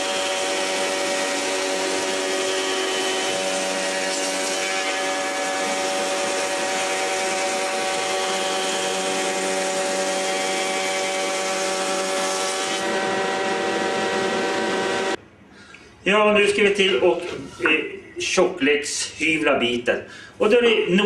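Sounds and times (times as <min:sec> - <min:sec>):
cutterhead planing wood hiss: 0:00.0 - 0:15.2
planer motor whine: 0:00.0 - 0:15.2.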